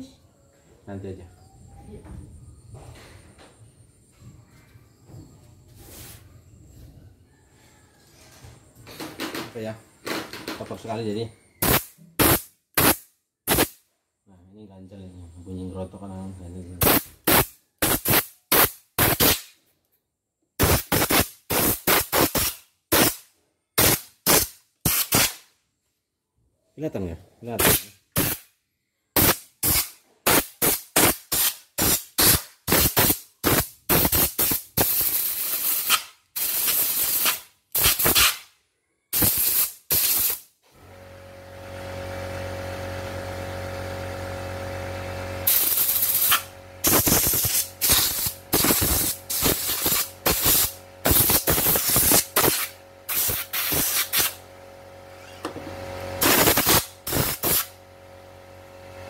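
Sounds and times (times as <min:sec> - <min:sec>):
compressed air blasts: 0:11.6 - 0:13.8, 0:16.8 - 0:19.6, 0:20.6 - 0:25.5, 0:27.6 - 0:28.5, 0:29.2 - 0:38.5, 0:39.1 - 0:40.5, 0:45.4 - 0:54.4, 0:56.2 - 0:57.8
motor hum: 0:40.7 - 0:59.0.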